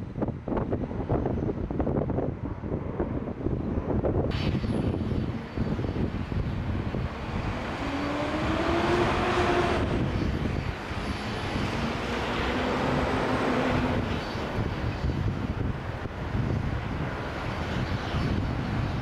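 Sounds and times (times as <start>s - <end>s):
jet airliner engine rumble: 0.0s - 19.0s
whining tone: 4.3s - 15.3s.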